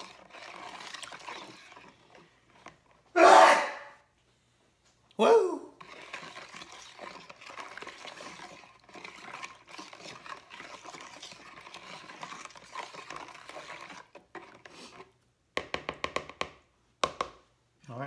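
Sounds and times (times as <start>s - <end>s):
liquid swishing in a bowl: 0.0s - 3.1s, 5.7s - 16.3s
spoon scraping plastic bowl: 0.0s - 3.1s, 5.8s - 16.4s.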